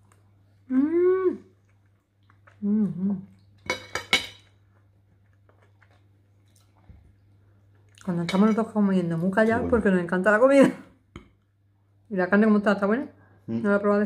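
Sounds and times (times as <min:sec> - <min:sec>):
person murmuring: 0:09.5 - 0:09.9.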